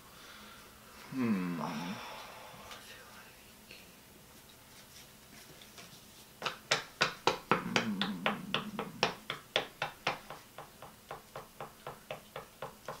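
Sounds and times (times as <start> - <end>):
tapping on a table: 6.4 - 13.0.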